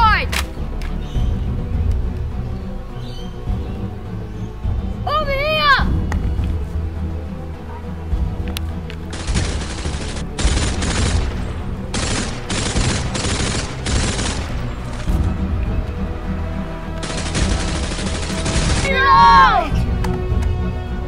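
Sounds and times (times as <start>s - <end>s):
background music: 0.0s - 21.0s
automatic gunfire bursts: 9.1s - 14.7s, 17.0s - 19.0s.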